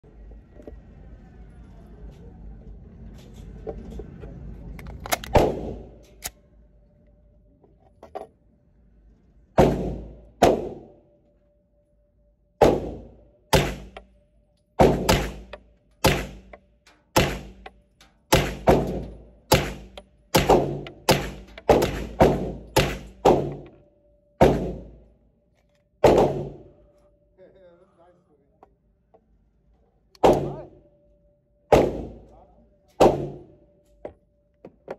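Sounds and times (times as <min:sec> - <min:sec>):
suppressed pistol shots: 0:12.6 - 0:14.0, 0:14.8 - 0:16.6, 0:17.2 - 0:17.7, 0:18.3 - 0:23.7, 0:24.4 - 0:24.9, 0:26.0 - 0:26.6, 0:30.2 - 0:30.6, 0:31.7 - 0:32.2, 0:33.0 - 0:33.5.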